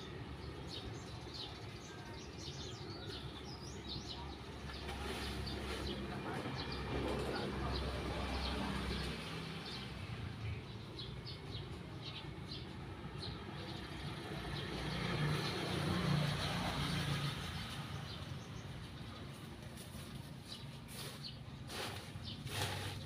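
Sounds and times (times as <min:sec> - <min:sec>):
birds chirping: 0:00.0 - 0:23.0
vehicle engine passing: 0:04.7 - 0:19.4.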